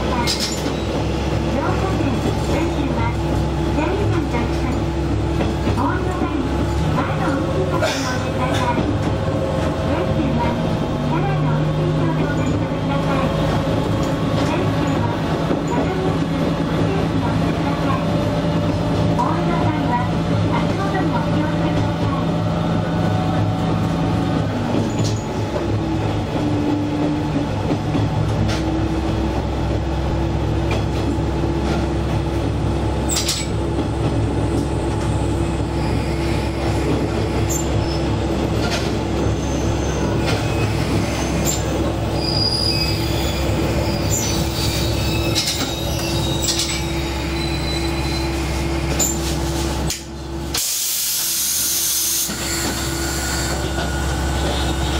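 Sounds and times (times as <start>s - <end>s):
rail rumble: 0.0s - 51.2s
diesel railcar engine hum: 0.0s - 54.9s
wheel squeals: 39.3s - 49.2s
air hiss: 50.6s - 52.3s.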